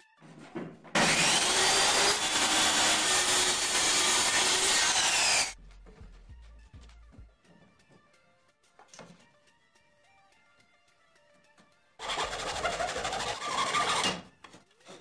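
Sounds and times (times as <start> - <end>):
circular saw cutting plywood: 0.9 - 5.6, 12.0 - 14.3.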